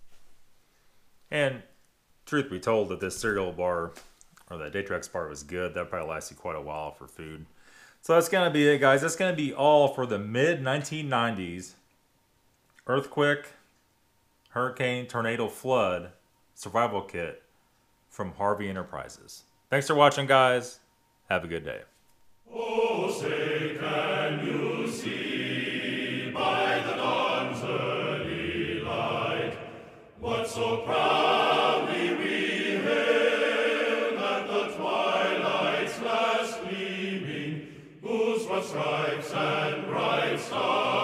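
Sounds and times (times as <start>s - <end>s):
music with choral singing: 22.5s - 41.0s.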